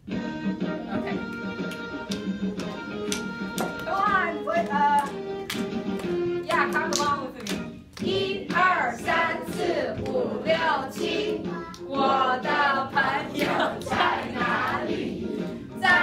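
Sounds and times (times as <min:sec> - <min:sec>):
hands clapping: 0:01.2 - 0:08.7, 0:09.5 - 0:10.2, 0:10.9 - 0:11.9, 0:13.4 - 0:14.8
children's song with voices singing: 0:03.7 - 0:05.3, 0:06.1 - 0:16.0.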